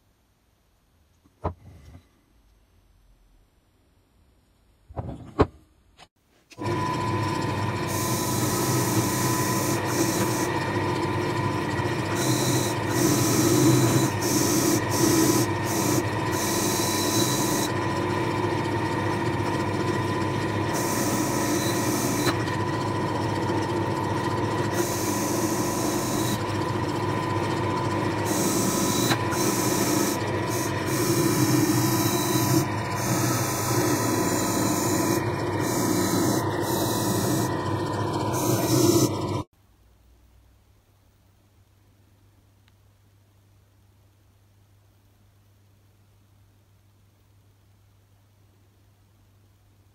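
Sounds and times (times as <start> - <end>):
wire wheel brushing metal: 18.9 - 39.4.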